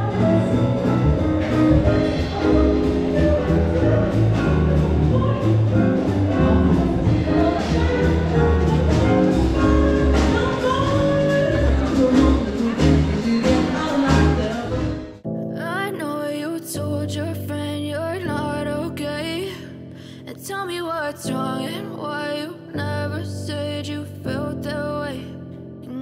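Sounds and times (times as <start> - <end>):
live band playing jazzy song: 0.0 - 15.2
strong bass line: 0.0 - 15.2.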